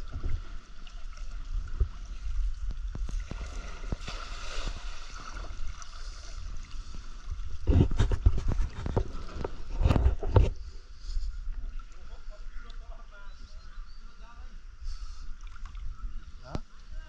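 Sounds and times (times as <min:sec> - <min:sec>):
water splashing from wading: 0:00.0 - 0:07.6, 0:15.4 - 0:16.2.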